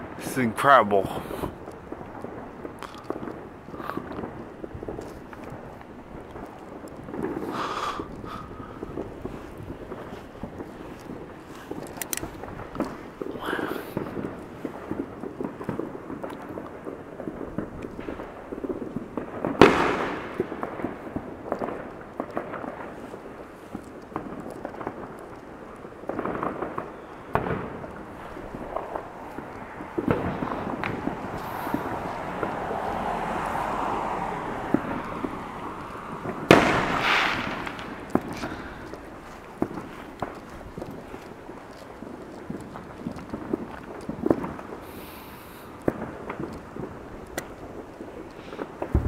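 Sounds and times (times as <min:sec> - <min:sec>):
distant firework pops and crackles: 0:00.0 - 0:49.0
loud firework bang: 0:19.2 - 0:23.0, 0:26.1 - 0:39.0, 0:48.8 - 0:49.0.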